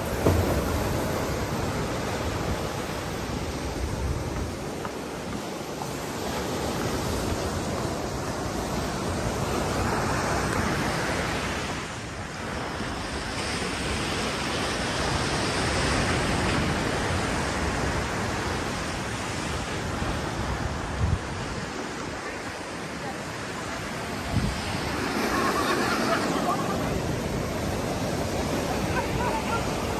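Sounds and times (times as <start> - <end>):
surf breaking on beach: 0.0 - 29.9
wind buffeting microphone: 15.7 - 22.2, 23.8 - 29.9.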